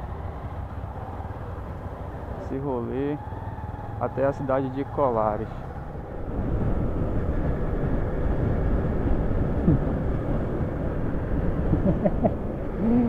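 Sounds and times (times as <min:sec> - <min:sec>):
wind rushing on microphone: 0:04.8 - 0:13.0.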